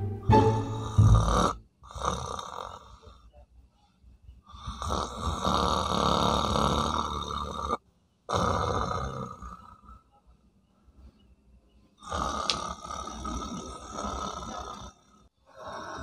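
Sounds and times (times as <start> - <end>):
man snoring: 0.7 - 3.1, 4.5 - 9.9, 12.0 - 16.0.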